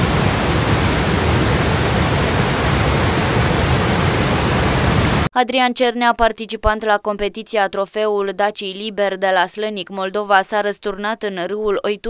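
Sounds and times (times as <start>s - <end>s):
floodwater rushing: 0.0s - 5.3s.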